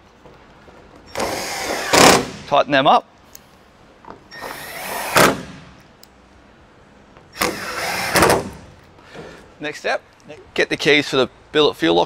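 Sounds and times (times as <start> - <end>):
impact driver driving screws: 1.1 - 2.4, 4.4 - 5.6, 7.4 - 8.7.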